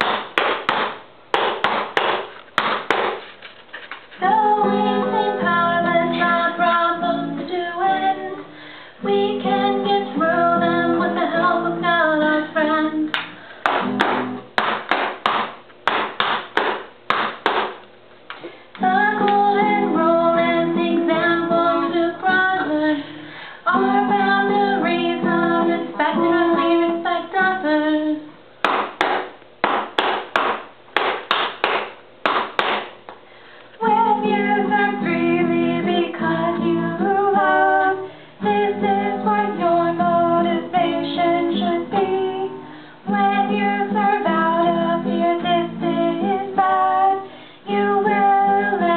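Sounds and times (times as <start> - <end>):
strummed acoustic guitar: 4.2 - 12.7, 13.3 - 14.9, 18.8 - 27.5
women singing together: 4.2 - 13.1, 18.8 - 23.0, 23.7 - 28.3, 33.8 - 48.9.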